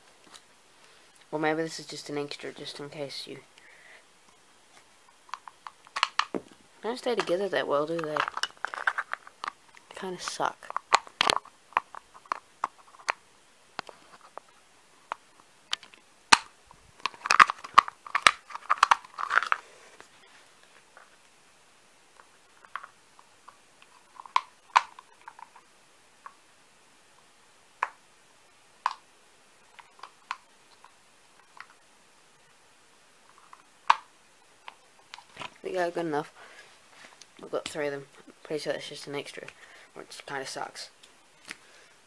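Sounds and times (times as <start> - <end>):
plastic parts clicking together: 5.3 - 6.4, 8.0 - 9.8, 15.1 - 19.6.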